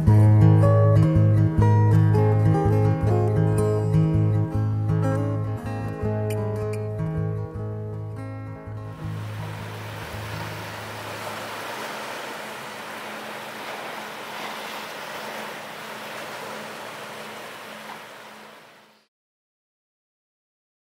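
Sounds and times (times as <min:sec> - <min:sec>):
waves washing over rocky shore: 0:08.9 - 0:19.0.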